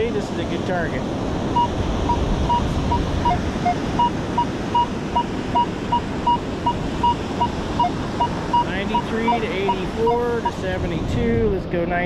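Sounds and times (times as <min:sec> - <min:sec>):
metal detector beeping: 0:01.6 - 0:10.6.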